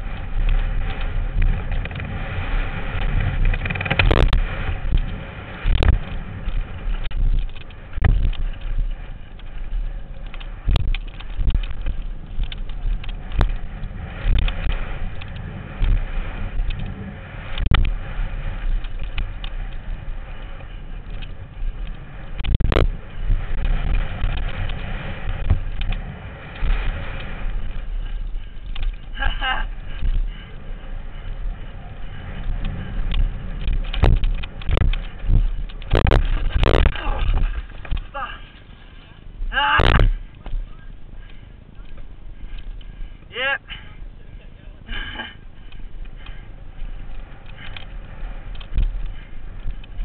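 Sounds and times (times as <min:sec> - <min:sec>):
bike rumble and wind: 0:00.0 - 0:50.0
sharp knocks and bumps: 0:02.9 - 0:18.0.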